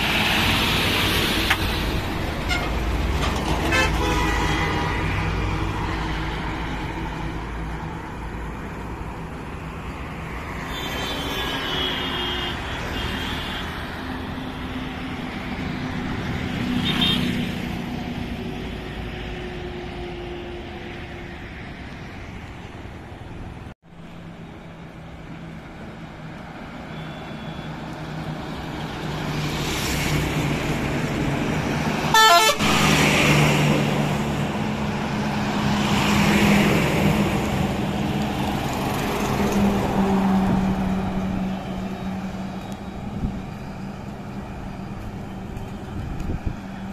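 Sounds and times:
heavy trucks passing: 0.0 - 46.9
vehicle horns: 2.4 - 4.8, 10.6 - 13.9, 16.8 - 17.4, 32.1 - 32.8.

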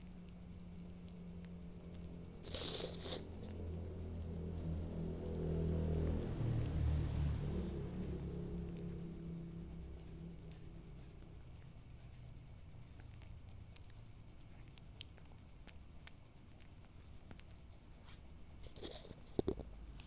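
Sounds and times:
cricket chirring: 0.0 - 20.0
kitten eating clicks: 10.0 - 20.0.

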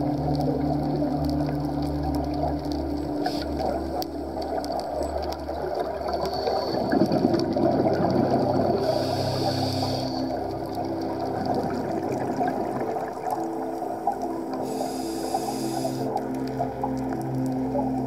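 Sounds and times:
faint clicks: 0.0 - 8.2
regulator bubbles rushing: 0.0 - 9.1, 9.8 - 14.7
low underwater hum: 0.0 - 18.0
water hiss: 3.1 - 4.0, 5.5 - 10.6, 14.2 - 16.3.

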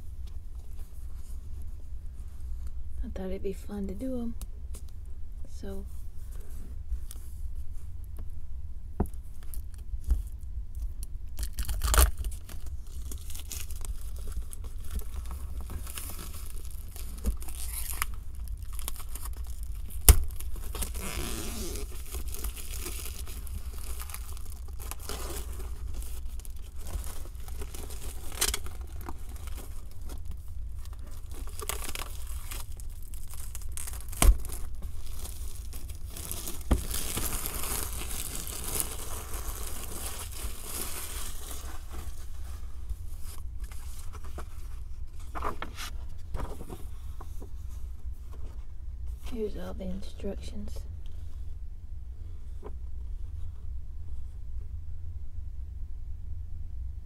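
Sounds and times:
steady low hum: 0.0 - 57.0
wrapping tearing and crinkling: 9.3 - 47.1.

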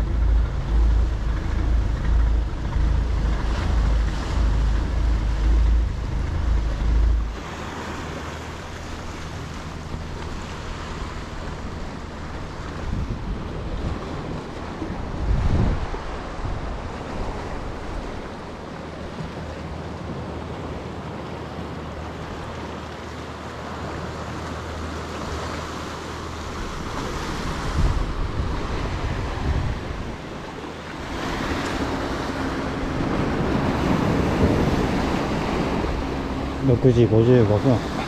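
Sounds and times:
faint low hum: 0.0 - 14.0
wind on microphone: 0.0 - 20.8, 26.4 - 38.0
surf washing against rocks: 0.0 - 38.0.

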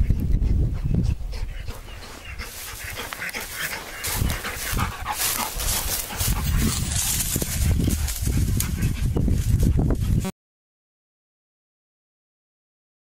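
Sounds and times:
wind buffeting microphone: 0.0 - 10.3
hound baying: 1.3 - 7.9
footsteps through dry grass: 1.9 - 10.2.

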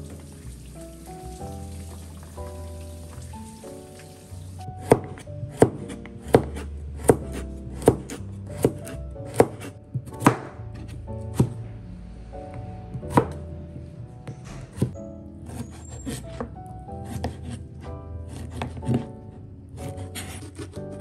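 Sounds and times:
soft background music: 0.0 - 21.0
knife chopping on a cutting board: 4.8 - 11.6, 13.0 - 13.4, 14.5 - 17.6, 18.3 - 19.1.

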